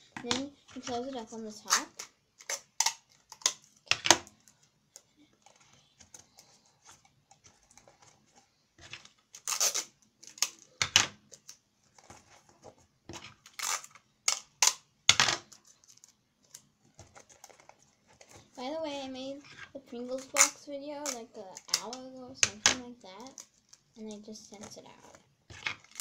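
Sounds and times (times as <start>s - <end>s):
faint handling noise: 0.1s - 14.0s, 15.4s - 26.0s
sticky tape ripping: 9.3s - 10.8s, 13.4s - 14.8s.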